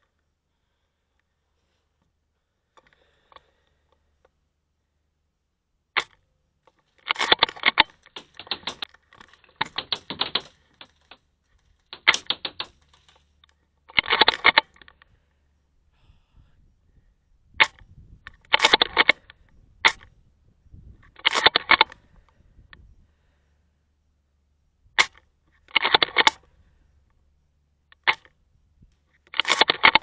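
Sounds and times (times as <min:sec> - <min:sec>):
airsoft guns firing bursts: 0:07.1 - 0:11.2, 0:11.9 - 0:13.1.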